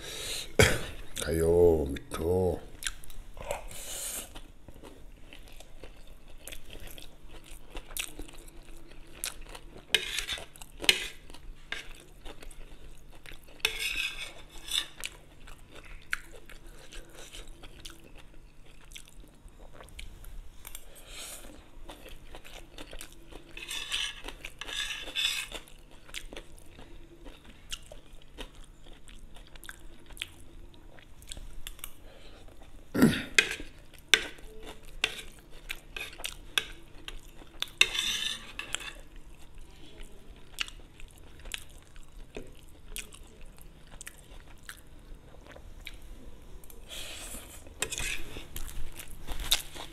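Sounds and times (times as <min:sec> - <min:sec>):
metal spoon scraping plate: 0:13.6 - 0:15.0, 0:23.6 - 0:25.5, 0:37.8 - 0:39.1, 0:47.8 - 0:48.3.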